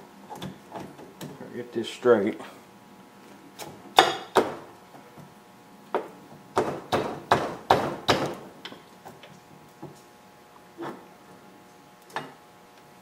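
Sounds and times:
sharp metal knocks: 4.0 - 4.6.

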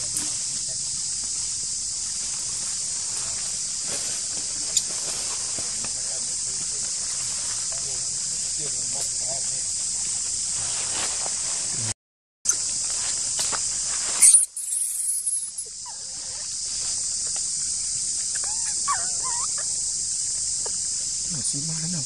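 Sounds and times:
insects buzzing drone: 0.0 - 22.0
short high calls: 14.2 - 15.8.

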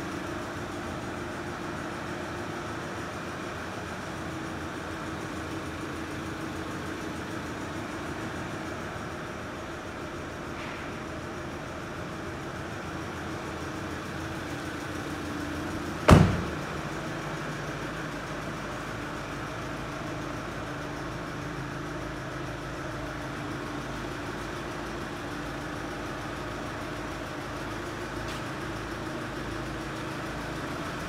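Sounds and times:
diesel engine idling: 0.0 - 31.0
car door shutting: 16.0 - 16.8.

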